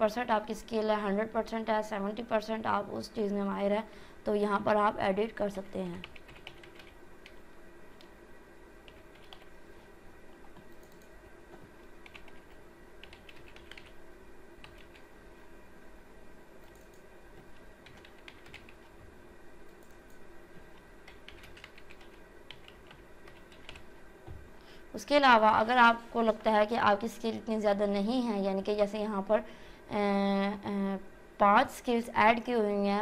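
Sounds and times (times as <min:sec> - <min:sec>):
faint computer keyboard typing: 0:05.5 - 0:08.2, 0:08.8 - 0:09.6, 0:10.3 - 0:14.0, 0:14.6 - 0:15.1, 0:16.6 - 0:18.9, 0:19.6 - 0:23.9.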